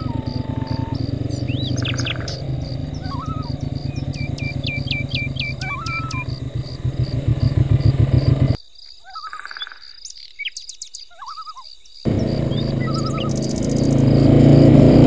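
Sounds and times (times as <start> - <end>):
high-pitched pulsing: 0.0 - 8.6, 12.1 - 15.0
low rhythmic rumble: 0.0 - 8.6, 12.1 - 15.0
songbirds chirping: 0.0 - 14.8.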